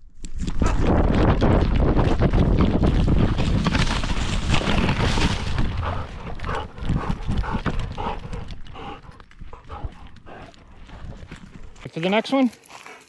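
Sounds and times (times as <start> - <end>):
dog footfalls on dirt: 0.2 - 13.0.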